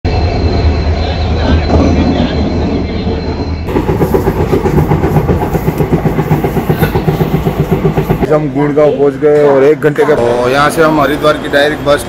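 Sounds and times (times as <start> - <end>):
thin high whine: 0.1 - 8.3
train deep rumble: 0.1 - 9.9
train rhythmic rattle: 0.1 - 9.9.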